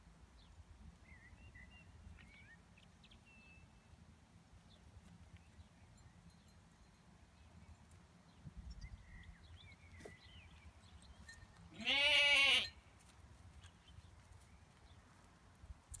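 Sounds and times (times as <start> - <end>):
lamb bleating: 11.7 - 12.7.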